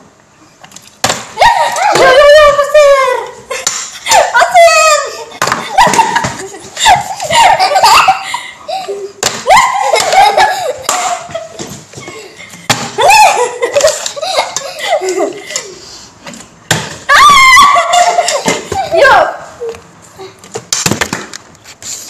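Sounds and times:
women and girl laughing: 1.4 - 15.8, 17.2 - 19.8.

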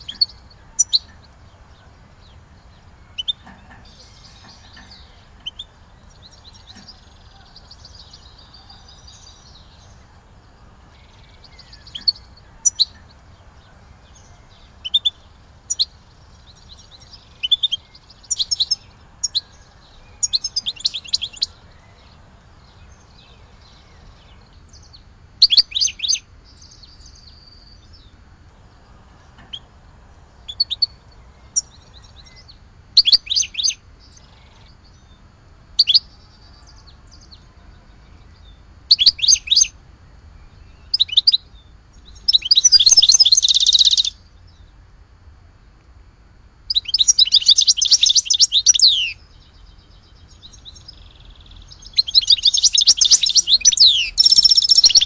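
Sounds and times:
goldfinch twittering chirps and trills: 0.0 - 10.2, 10.9 - 28.1, 30.5 - 35.2, 35.8 - 37.4, 38.0 - 39.7, 40.6 - 44.2, 46.7 - 55.0
steady low hiss: 0.0 - 55.0.

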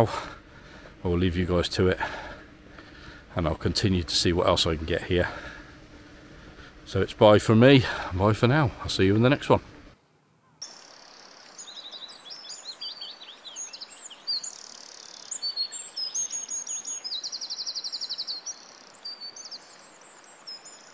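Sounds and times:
faint steady hiss: 0.0 - 20.9
bird trill: 10.4 - 20.9
small birds singing: 10.4 - 20.9.

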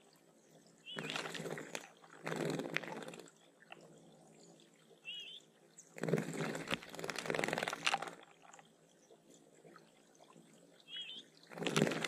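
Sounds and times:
birds splashing in water: 0.8 - 3.8, 5.1 - 8.8, 10.9 - 12.0.

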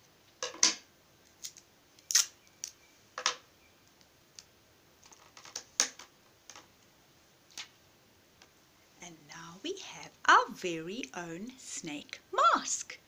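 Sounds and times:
sticky tape crackling: 1.2 - 2.8.

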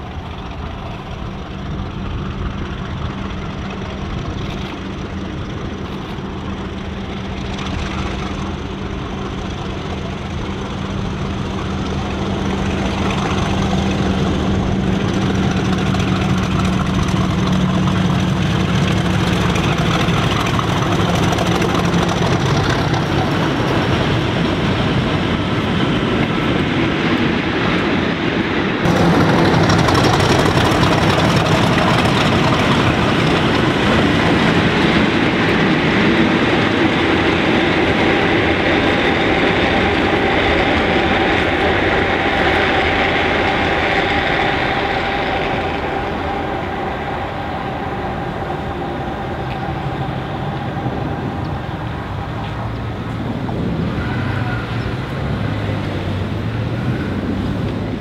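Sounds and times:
diesel locomotives running past: 0.0 - 58.0
train wheels on rails: 0.0 - 58.0
steady high tones: 32.1 - 53.2.

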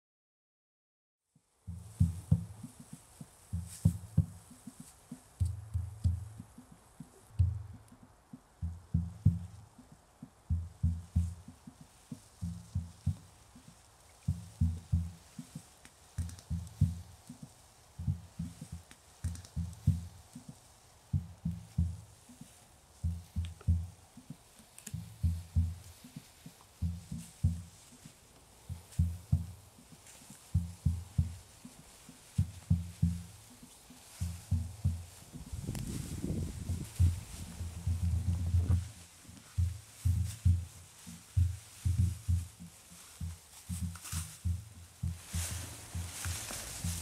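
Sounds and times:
faint steady hiss: 1.2 - 47.0
deep low thuds: 1.7 - 4.7, 5.3 - 6.6, 7.2 - 15.6, 16.2 - 22.3, 22.9 - 24.2, 25.0 - 26.1, 26.7 - 27.9, 28.6 - 31.6, 32.4 - 33.6, 34.2 - 47.0
low thumps and rumbles: 34.3 - 42.7.

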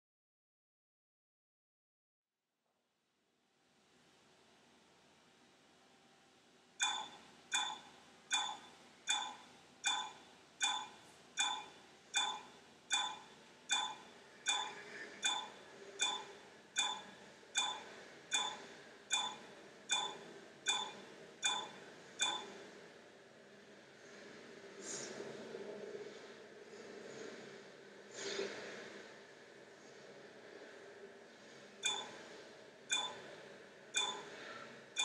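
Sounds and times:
clock-like ticking: 6.8 - 22.6, 31.8 - 32.3, 32.9 - 33.4, 34.0 - 35.0.

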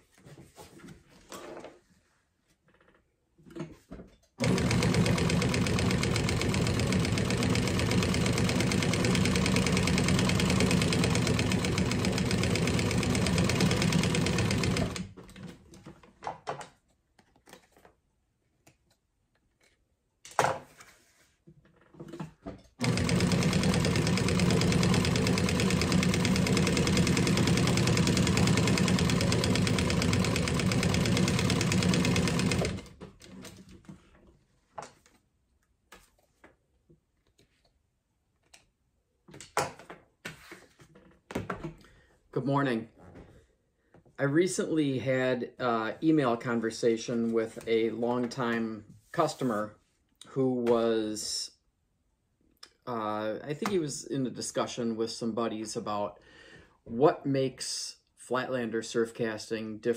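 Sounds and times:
sewing machine stitching: 4.4 - 15.6, 22.8 - 33.8.

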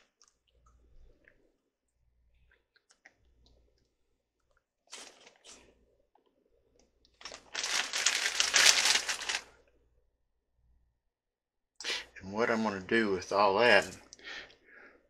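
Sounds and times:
crinkling handling noise: 7.2 - 9.5.

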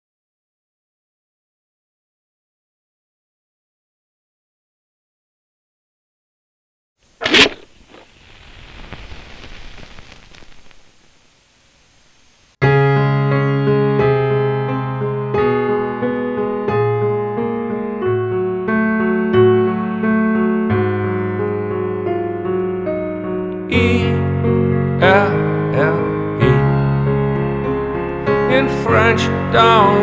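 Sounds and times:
faint rushing noise: 7.2 - 12.6
keyboard chords music: 12.6 - 30.0.

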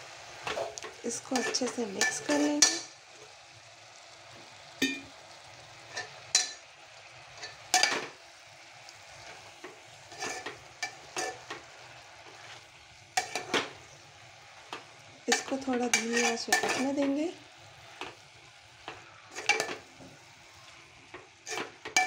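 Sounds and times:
faint frying sizzle: 0.0 - 22.0
spoon scraping metal pot: 1.2 - 2.8, 9.6 - 11.7, 12.3 - 13.7, 15.3 - 17.2, 19.3 - 19.8, 21.4 - 22.0.

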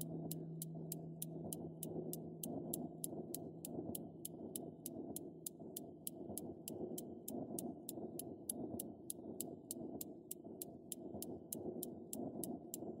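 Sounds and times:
low muffled rumble: 0.0 - 5.2
clock-like ticking: 0.0 - 13.0.

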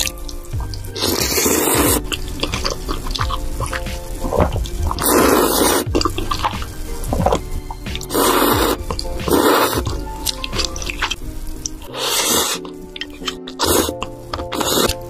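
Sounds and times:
background music with held tones: 0.0 - 15.0
slurping noodles: 0.0 - 15.0
wet chewing clicks: 0.0 - 15.0.

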